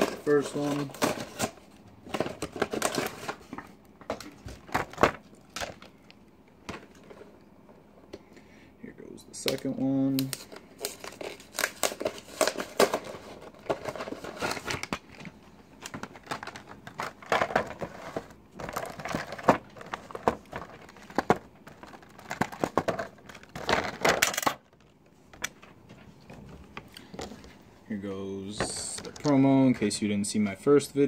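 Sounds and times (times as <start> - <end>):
plastic packaging crinkling: 9.4 - 25.7.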